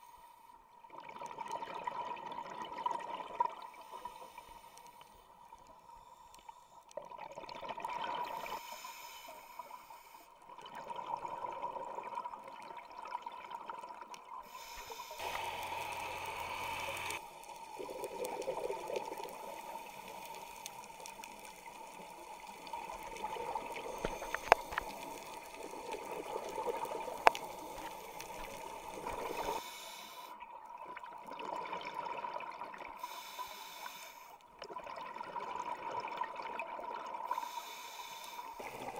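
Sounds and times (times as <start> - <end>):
exhaled bubbles gurgling: 0.8 - 4.2, 7.0 - 8.6, 10.4 - 29.6, 30.4 - 33.0, 34.6 - 37.6.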